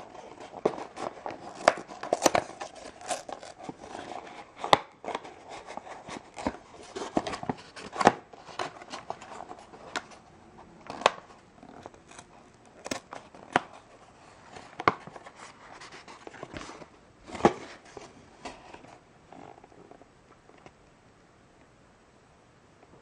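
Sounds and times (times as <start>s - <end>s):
cardboard box being torn open: 0.4s - 10.0s.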